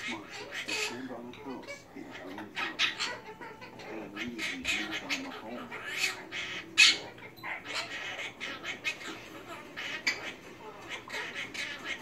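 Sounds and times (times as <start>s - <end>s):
parrots chattering and squawking: 0.0s - 12.0s.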